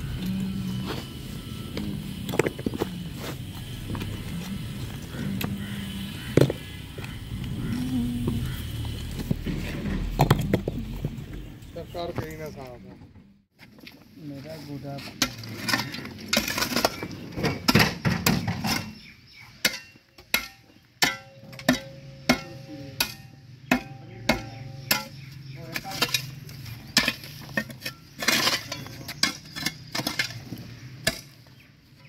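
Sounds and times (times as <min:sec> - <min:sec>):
steady low hum: 0:00.0 - 0:11.8.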